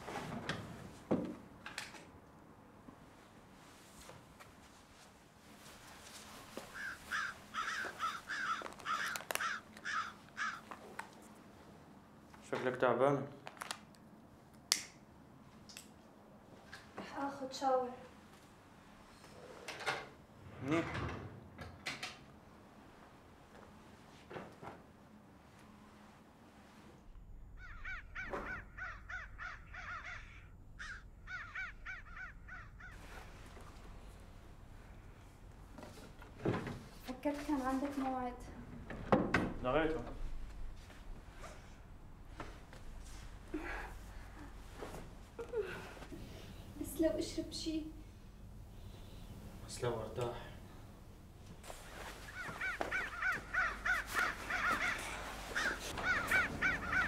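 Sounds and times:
crow cawing: 6.7s - 10.8s, 27.6s - 33.0s, 52.2s - 57.0s.

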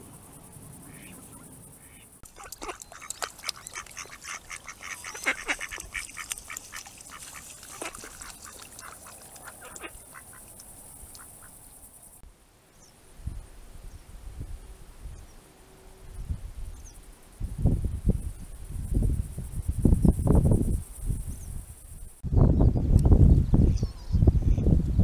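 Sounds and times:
ducks quacking: 0.8s - 11.6s.

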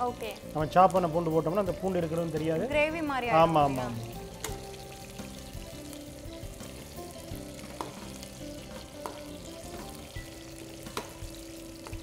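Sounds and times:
garlic sizzling in hot oil: 0.0s - 12.0s
metal spatula stirring in pan: 7.5s - 12.0s
spatula clicking against pan: 7.6s - 8.1s, 8.8s - 9.3s, 10.9s - 11.2s.

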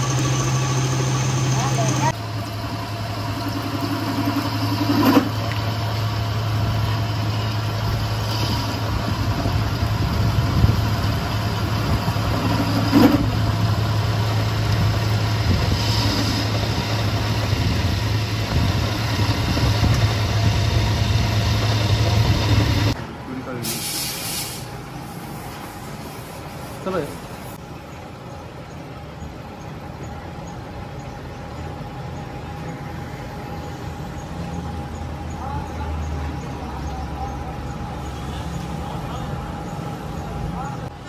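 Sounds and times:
metal lathe humming: 0.0s - 23.0s.

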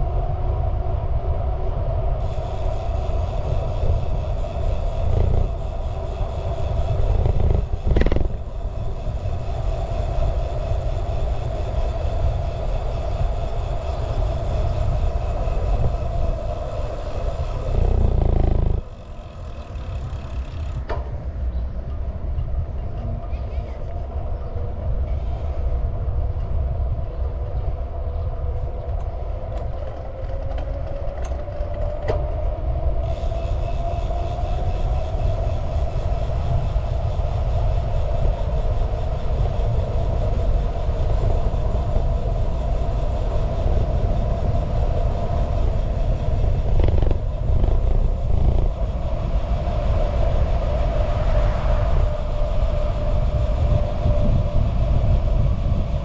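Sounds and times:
vehicle engine rumble: 0.0s - 56.0s
rising whine: 2.1s - 20.9s.

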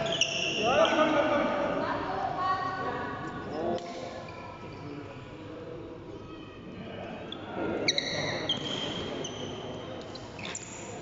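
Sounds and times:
shoes squeaking on court floor: 0.0s - 1.0s, 7.3s - 11.0s
murmur of voices: 0.0s - 11.0s.

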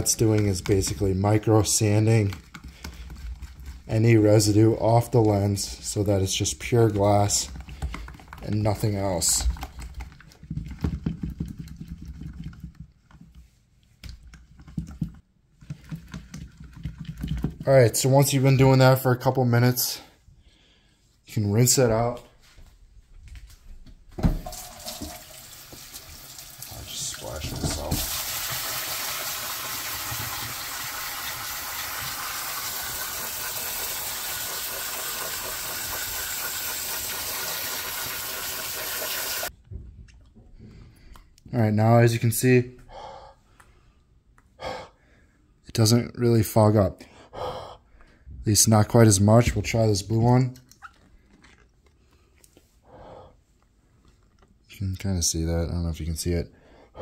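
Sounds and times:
sink sprayer water hissing: 24.4s - 39.5s.

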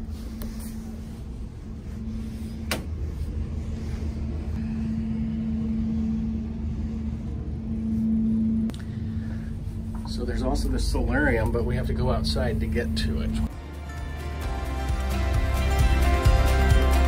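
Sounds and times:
ferry engines droning: 0.0s - 17.0s.

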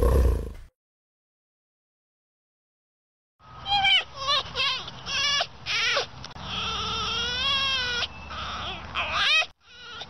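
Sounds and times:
marmots squealing: 3.7s - 10.0s.

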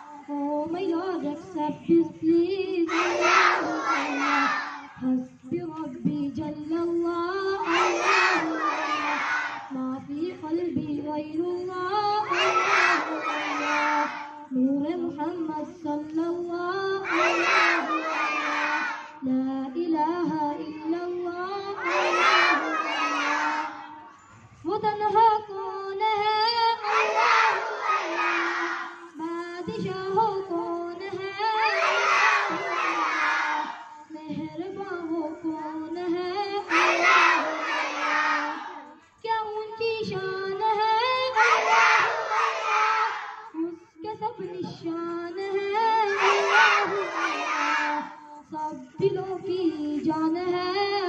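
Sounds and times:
boy singing into a microphone: 0.0s - 24.0s, 24.6s - 37.7s, 38.4s - 42.3s, 43.4s - 51.0s.

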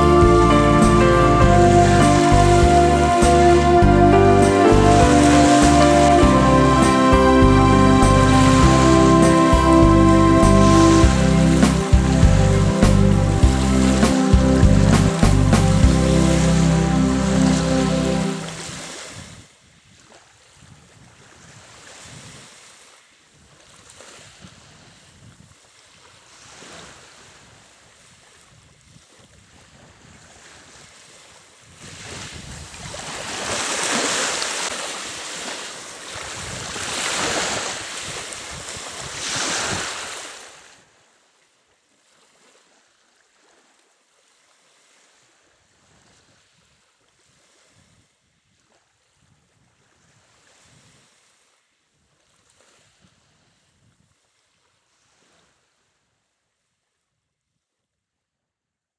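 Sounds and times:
sea surf surging: 0.0s - 19.2s
wind: 0.0s - 58.0s.

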